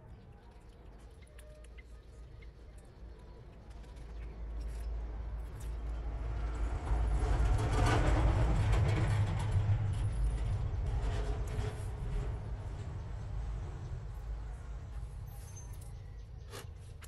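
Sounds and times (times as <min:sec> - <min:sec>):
vehicle passing by: 0:05.2 - 0:15.0.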